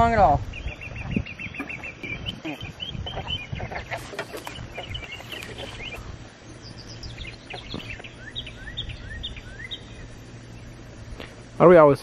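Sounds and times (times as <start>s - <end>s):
birds chirping: 0.0s - 12.0s
low background rumble: 0.0s - 12.0s.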